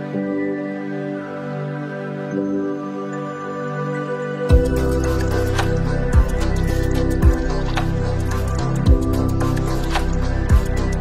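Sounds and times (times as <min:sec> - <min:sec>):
slow sustained background music: 0:00.0 - 0:11.0.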